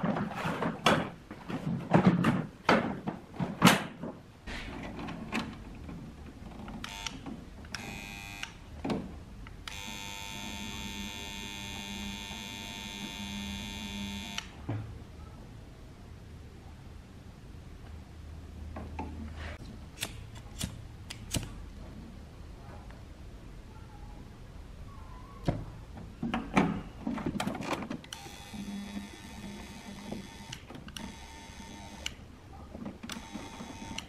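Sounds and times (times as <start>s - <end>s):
plastic parts clattering: 0.0s - 6.8s
low electrical hum: 0.0s - 34.0s
electrical buzz: 6.8s - 8.6s, 9.6s - 14.6s.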